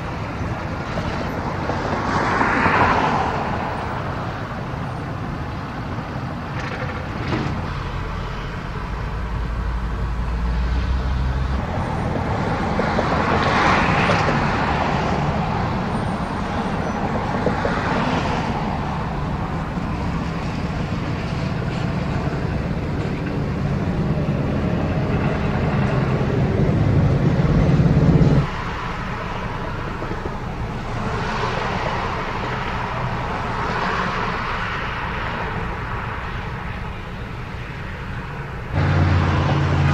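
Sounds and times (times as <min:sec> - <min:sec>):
vehicles passing on highway: 0:00.0 - 0:39.9
heavy low engine rumble: 0:03.5 - 0:39.9.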